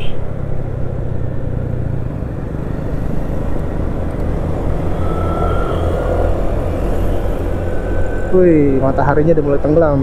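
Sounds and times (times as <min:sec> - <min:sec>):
wind noise: 0:02.7 - 0:09.7
faint thin whine: 0:04.6 - 0:10.0.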